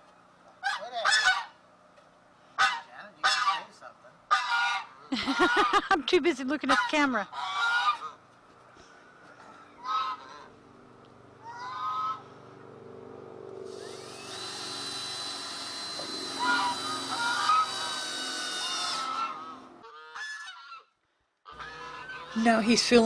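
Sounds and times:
geese honking: 0.6 - 1.6, 2.6 - 8.2, 9.7 - 10.6, 11.4 - 12.4, 16.2 - 23.0
cordless drill whining: 13.7 - 19.8.

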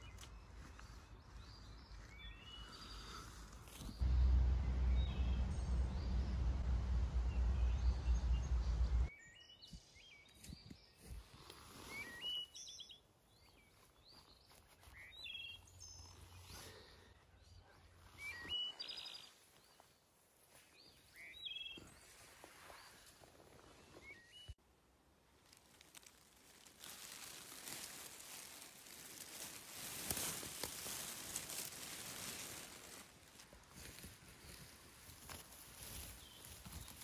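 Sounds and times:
small birds chirping: 0.0 - 24.6, 25.9 - 37.0
loud low rumble: 4.0 - 9.1.

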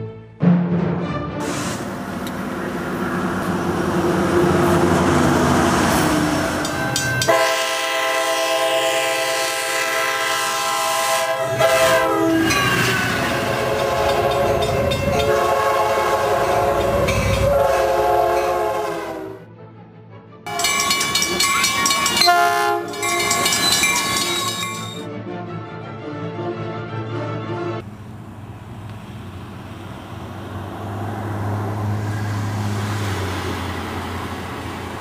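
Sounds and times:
train rumble: 1.0 - 19.4, 20.5 - 25.1, 27.8 - 35.0
locomotive air horn: 1.4 - 19.5, 20.5 - 25.0.

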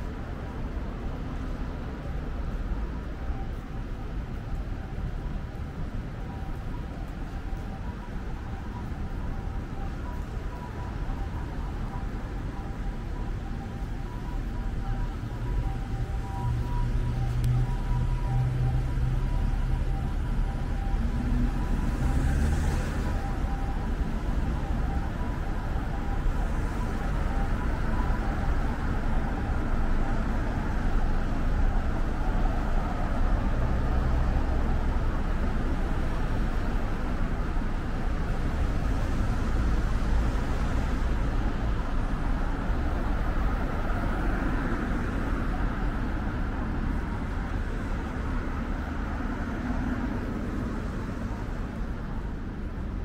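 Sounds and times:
traffic rumble: 0.0 - 53.0.

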